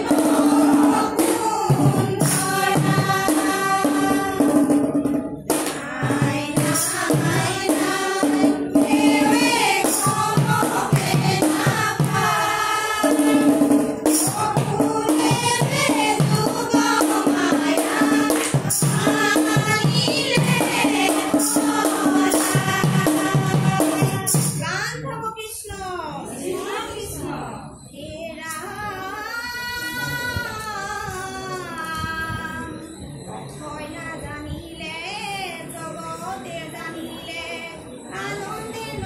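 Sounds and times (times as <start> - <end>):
rhythmic hand-clapping: 0.0 - 4.4, 5.5 - 24.6
women singing in unison: 0.0 - 24.9, 28.0 - 33.0, 33.7 - 39.0.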